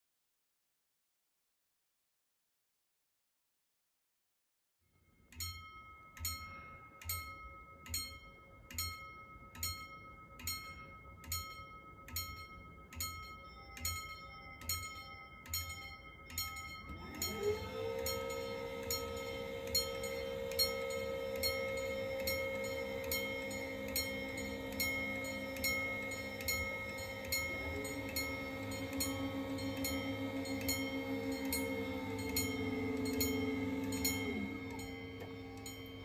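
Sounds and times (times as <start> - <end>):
level crossing warning bell: 5.2 - 36.0
barrier motor whine: 16.6 - 36.0.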